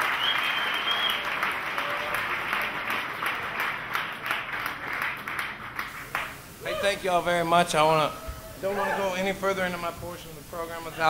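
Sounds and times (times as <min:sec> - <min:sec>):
high whistle from crowd: 0:00.0 - 0:02.1
audience applauding: 0:00.0 - 0:07.0.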